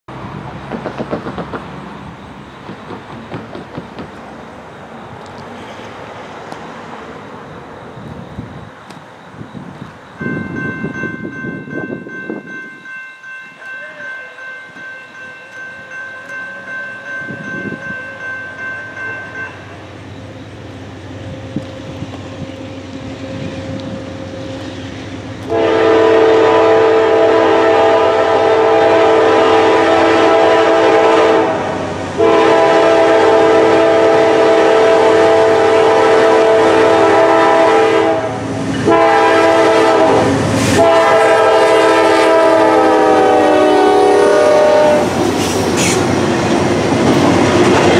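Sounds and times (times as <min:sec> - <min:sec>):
wheels clattering on rail: 0:00.1 - 0:26.5, 0:44.4 - 0:47.9
locomotive rumble: 0:00.1 - 0:47.9
crossing bell ringing: 0:10.0 - 0:21.5
train air horn blasts: 0:25.4 - 0:45.1.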